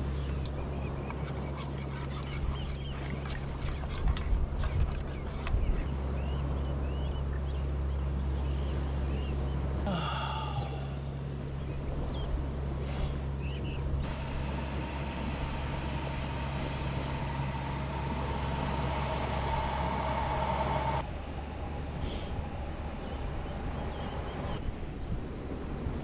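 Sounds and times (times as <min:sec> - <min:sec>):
gas stove burning: 0:14.0 - 0:21.0.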